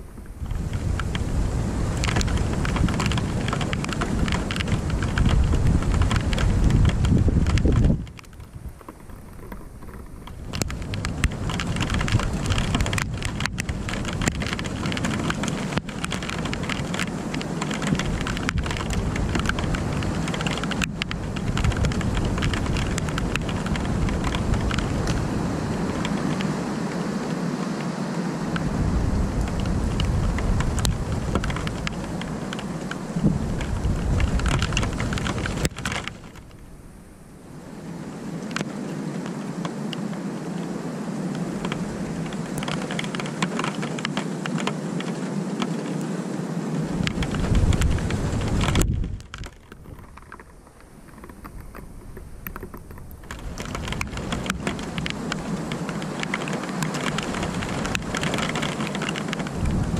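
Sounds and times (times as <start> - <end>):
low thunder rumble: 0.0 - 26.4, 28.5 - 37.8, 46.8 - 50.7
raindrops ticking near microphone: 0.0 - 46.1, 46.8 - 59.9
steady rain falling: 0.0 - 59.9.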